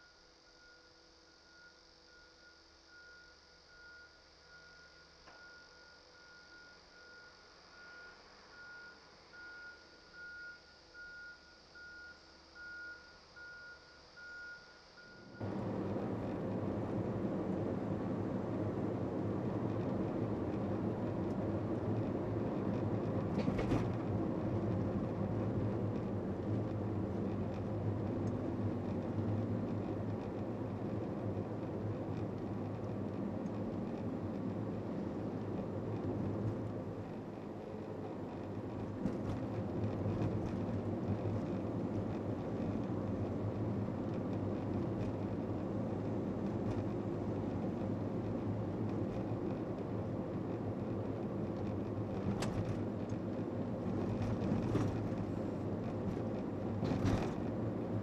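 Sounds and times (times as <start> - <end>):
faint high pulsing tone: 0.0 - 17.6
low hum: 0.0 - 50.3
loud steady rumbling: 15.4 - 23.4.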